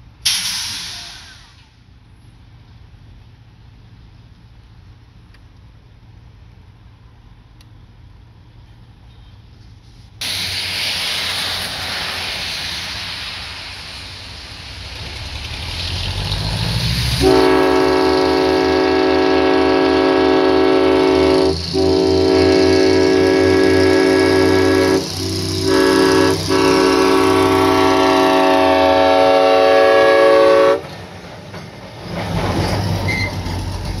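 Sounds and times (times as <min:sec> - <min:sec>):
locomotive engine rumble: 0:00.0 - 0:34.0.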